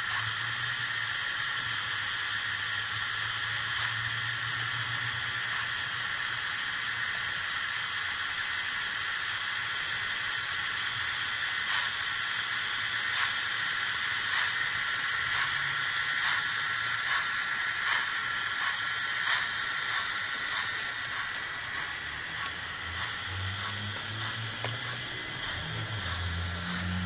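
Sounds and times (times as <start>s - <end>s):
model locomotive hiss and hum: 0.0s - 27.0s
wheels clicking: 14.3s - 27.0s.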